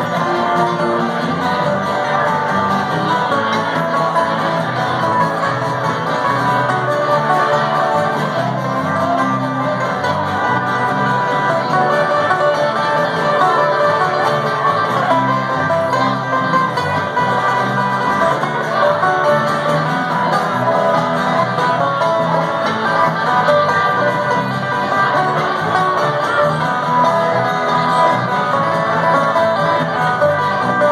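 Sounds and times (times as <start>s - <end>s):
acoustic guitar: 0.0s - 30.9s
banjo rolls: 0.0s - 30.9s
electric bass guitar: 0.0s - 30.9s.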